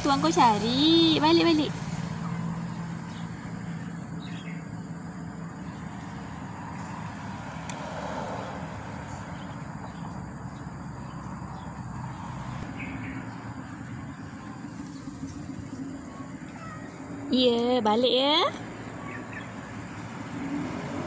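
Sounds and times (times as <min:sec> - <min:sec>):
outdoor background noise: 0:00.0 - 0:21.0
faint bird chirps: 0:18.8 - 0:19.6.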